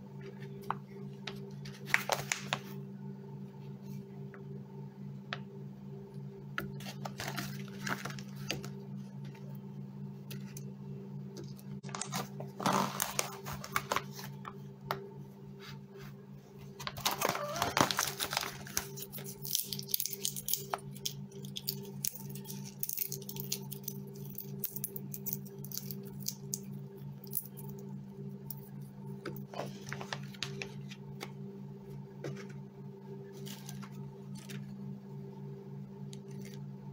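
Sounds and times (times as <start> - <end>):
steady low hum: 0.0 - 36.9
plastic pouch crinkling: 16.9 - 26.5.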